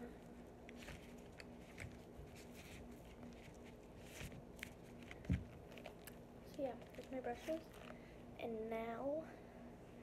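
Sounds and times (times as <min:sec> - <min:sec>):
faint steady hum: 0:00.0 - 0:10.0
makeup brushes rustling and tapping: 0:00.7 - 0:08.0.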